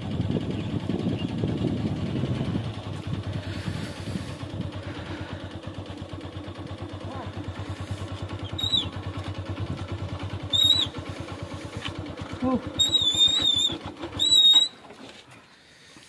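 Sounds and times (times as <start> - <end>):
motorbike engine idling: 0.0 - 16.0
high whistling chirp: 8.4 - 9.0, 10.5 - 11.0, 12.8 - 14.8.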